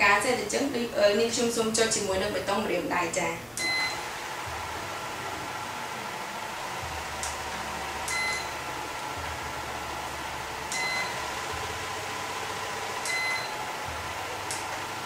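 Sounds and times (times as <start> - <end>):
low hum: 3.5 - 15.0
short high beeps: 3.6 - 4.0, 8.1 - 8.6, 10.7 - 11.2, 13.1 - 13.6.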